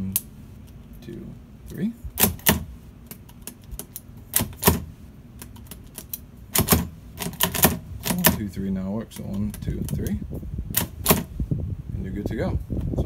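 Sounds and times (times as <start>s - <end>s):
metallic lock clicks: 2.2s - 4.8s.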